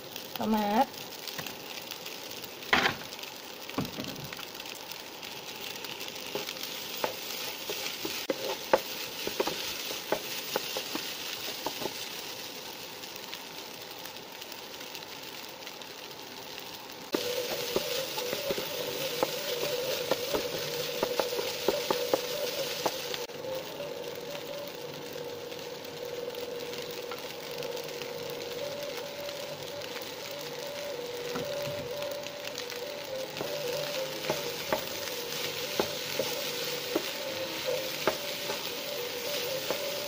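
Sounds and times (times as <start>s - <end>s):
rice sizzling in frying pan: 0.0s - 40.0s
steady hum: 17.1s - 40.0s.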